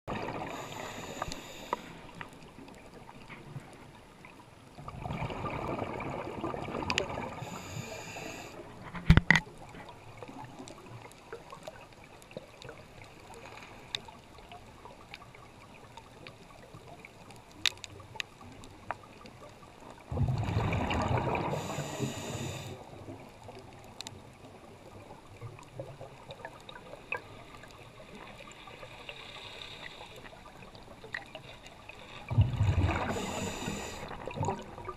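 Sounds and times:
underwater bubbles gurgling: 0:00.1 - 0:34.9
faint hiss: 0:00.2 - 0:02.5, 0:07.3 - 0:08.8, 0:20.4 - 0:23.1, 0:27.2 - 0:30.4, 0:31.4 - 0:34.6.

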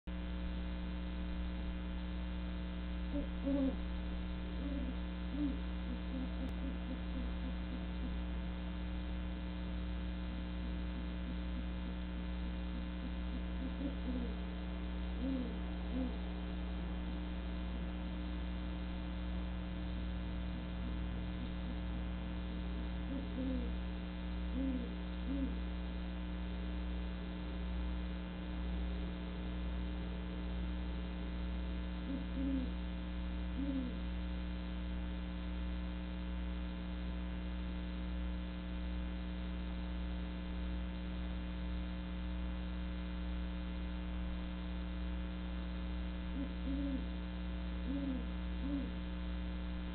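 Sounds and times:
steady electrical hum: 0:00.1 - 0:49.9
owl hooting: 0:03.1 - 0:08.4, 0:10.6 - 0:11.8, 0:12.7 - 0:17.9, 0:20.8 - 0:22.0, 0:23.0 - 0:23.8, 0:24.5 - 0:25.6, 0:32.0 - 0:32.8, 0:33.5 - 0:34.0, 0:46.3 - 0:47.1, 0:47.8 - 0:49.0.

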